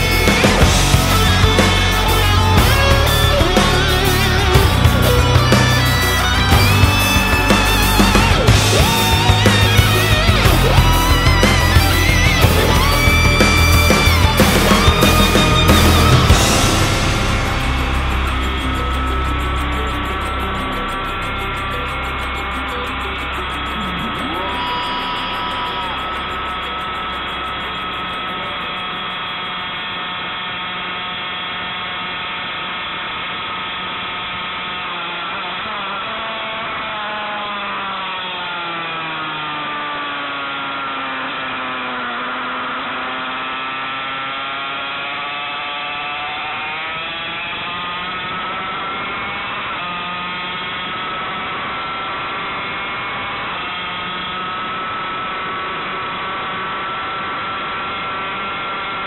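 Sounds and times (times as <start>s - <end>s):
racing engine at high revs: 34.2s - 55.3s.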